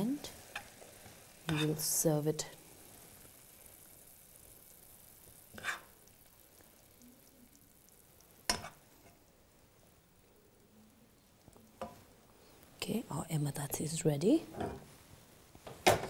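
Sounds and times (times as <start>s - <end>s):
faint sizzle: 0.0s - 16.0s
spoon scraping in pan: 5.5s - 6.1s, 8.4s - 9.2s.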